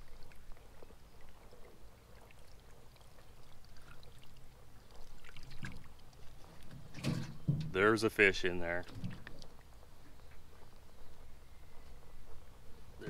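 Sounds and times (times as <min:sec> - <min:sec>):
water pouring and trickling: 0:00.0 - 0:09.8.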